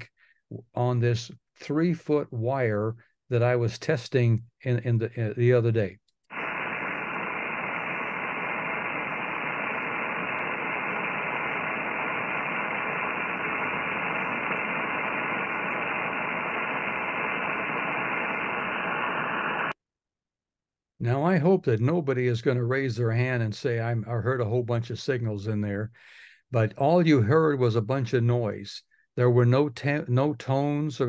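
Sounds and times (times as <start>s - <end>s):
radio static hiss: 6.3s - 19.8s.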